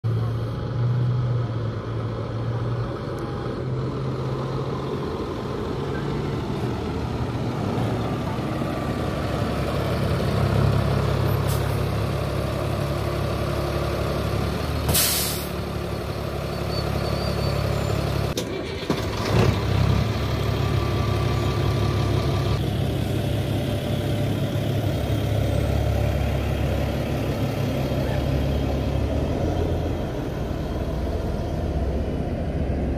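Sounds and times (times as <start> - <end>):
bus diesel engine running: 0.0 - 32.9
air-brake hiss: 14.9 - 15.6.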